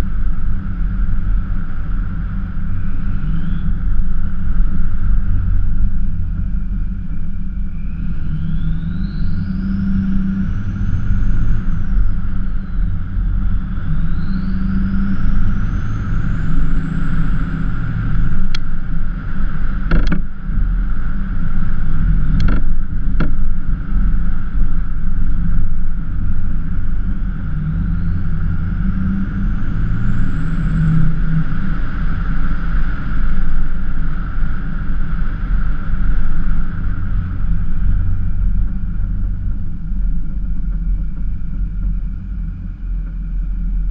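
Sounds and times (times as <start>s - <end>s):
high whine: 0.0s - 43.9s
road noise: 0.0s - 43.9s
pickup truck engine rumble: 10.1s - 43.9s.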